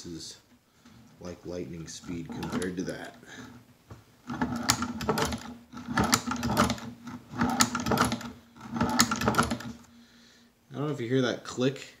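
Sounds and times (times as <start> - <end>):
sewing machine stitching clicks: 4.3 - 9.8.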